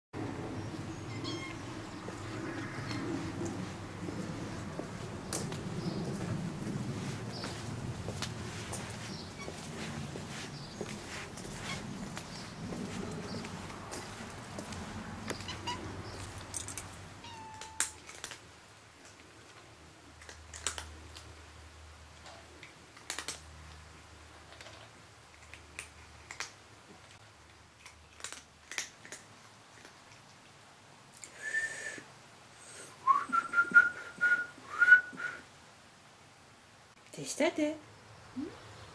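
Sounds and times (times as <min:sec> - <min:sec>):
cat meowing: 0:01.0 - 0:01.7, 0:15.4 - 0:15.9, 0:17.2 - 0:18.0
cat crunching dry kibble: 0:17.6 - 0:21.4, 0:22.6 - 0:23.8, 0:24.5 - 0:30.4.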